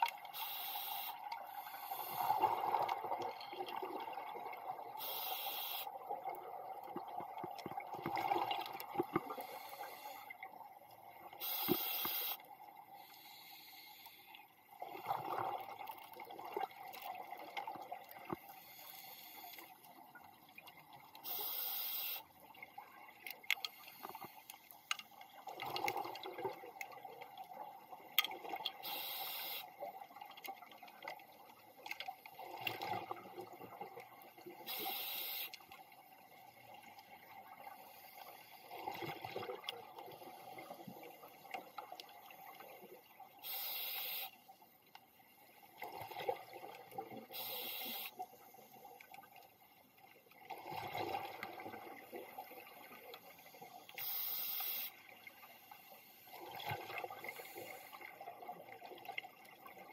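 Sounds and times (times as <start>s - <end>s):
regulator inhale hiss: 0.3s - 2.5s, 5.0s - 5.9s, 9.3s - 10.3s, 11.4s - 14.4s, 18.5s - 19.7s, 21.2s - 22.3s, 28.8s - 29.8s, 34.6s - 35.6s, 43.4s - 44.4s, 47.3s - 48.8s, 53.3s - 56.4s, 57.2s - 58.1s.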